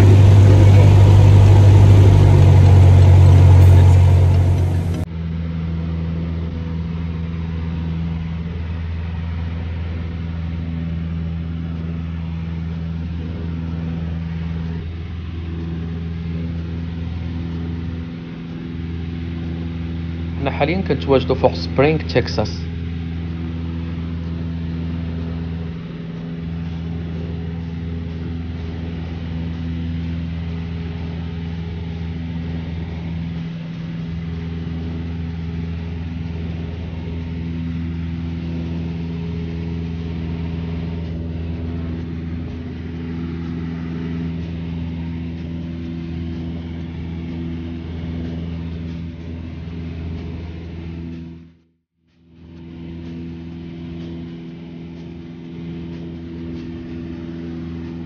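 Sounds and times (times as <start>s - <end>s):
propeller plane engine drone: 0.0s - 58.0s.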